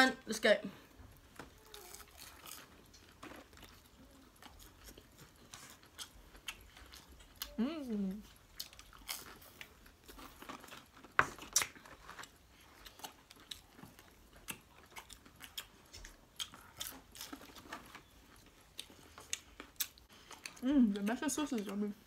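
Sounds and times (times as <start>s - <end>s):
people chewing food: 0.8s - 22.0s.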